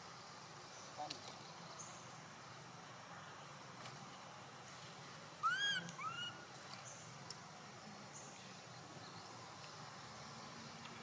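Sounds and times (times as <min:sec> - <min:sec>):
baby monkey squealing: 0:05.4 - 0:06.4.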